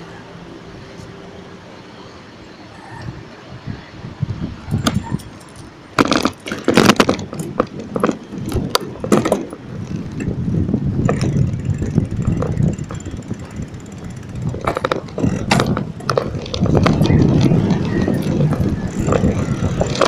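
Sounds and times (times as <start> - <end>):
wind: 0.0 - 20.0
bicycle rattling: 4.4 - 20.0
tyres rolling: 4.7 - 20.0.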